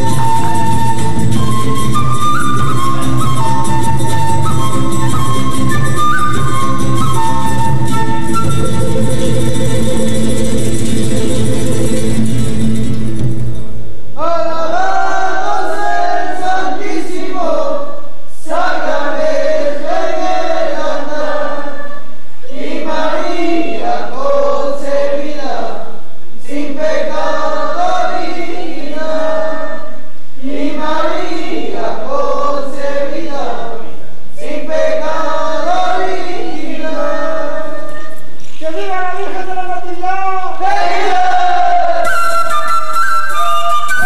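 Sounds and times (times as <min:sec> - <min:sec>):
guitar music: 0:00.0 - 0:13.9
choir singing: 0:14.2 - 0:25.8, 0:26.4 - 0:38.2, 0:40.4 - 0:42.5.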